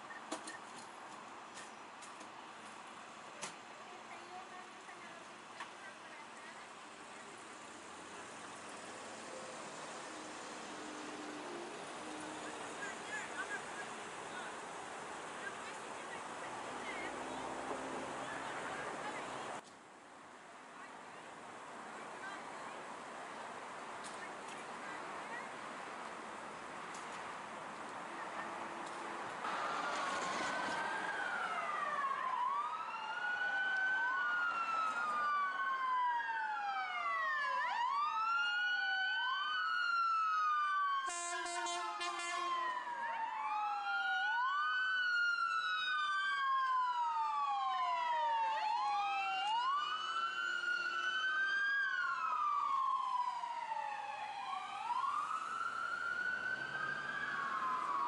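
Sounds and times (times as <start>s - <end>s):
emergency vehicle sirens wailing: 5.7s - 19.6s, 28.2s - 58.0s
pulsing horn blast: 41.1s - 42.6s.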